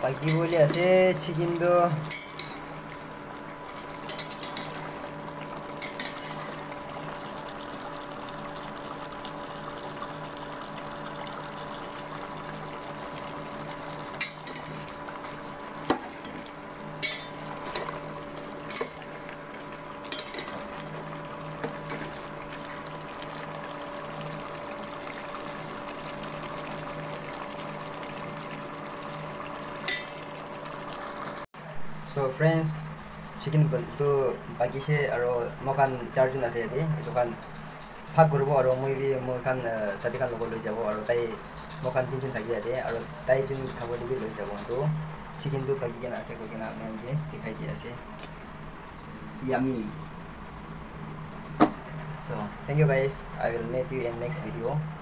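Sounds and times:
curry simmering in a pot: 0:00.0 - 0:31.8
steady hiss and hum: 0:00.0 - 0:55.0
metal spatula scraping a pot: 0:05.8 - 0:06.7.

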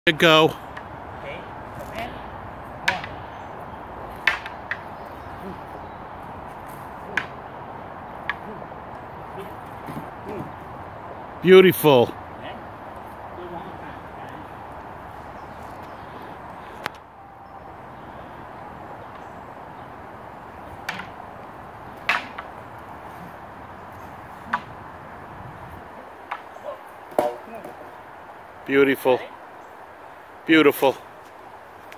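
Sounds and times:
steady outdoor hiss: 0:00.1 - 0:31.9
wooden poles clacking: 0:02.6 - 0:03.3, 0:04.1 - 0:10.8, 0:19.0 - 0:28.1
wooden poles clacking together: 0:04.1 - 0:05.7, 0:20.7 - 0:21.2, 0:21.9 - 0:24.9, 0:26.2 - 0:28.0.

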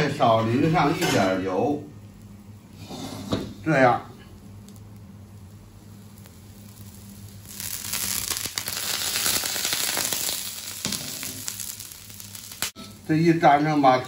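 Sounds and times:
pancakes sizzling in oil: 0:04.6 - 0:14.0.

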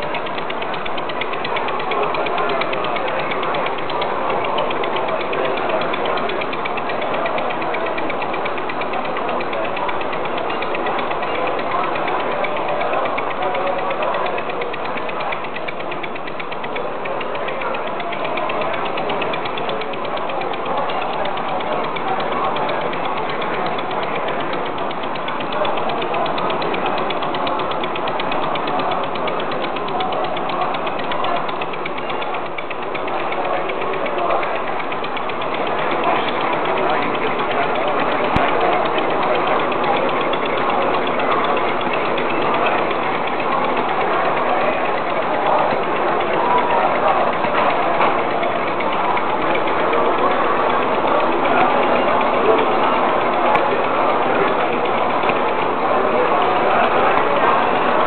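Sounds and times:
model engines clattering: 0:00.0 - 0:58.0.

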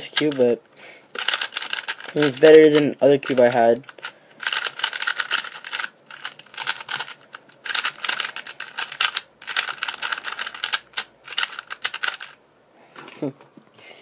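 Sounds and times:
speed cube clicking: 0:01.2 - 0:12.4.

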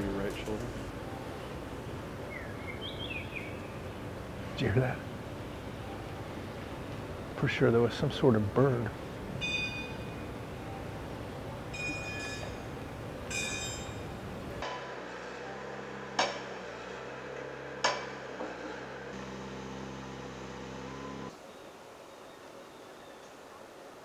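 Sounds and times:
bird calls: 0:02.2 - 0:04.0.

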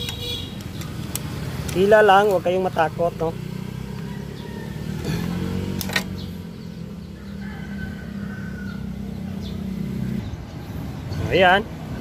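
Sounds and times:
engine hum: 0:00.0 - 0:12.0
distant rooster crowing: 0:03.6 - 0:05.6, 0:06.8 - 0:09.4
sharp metallic click: 0:05.8 - 0:06.2.

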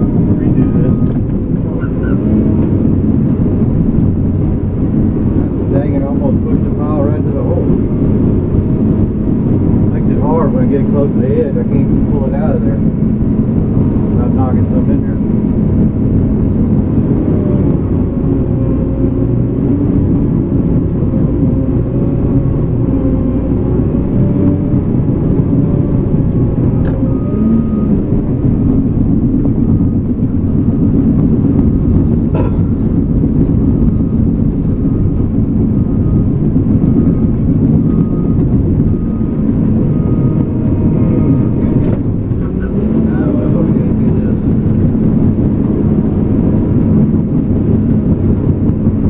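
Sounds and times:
bulldozer diesel engine running: 0:00.0 - 0:49.0
short beeps: 0:00.6 - 0:01.2.

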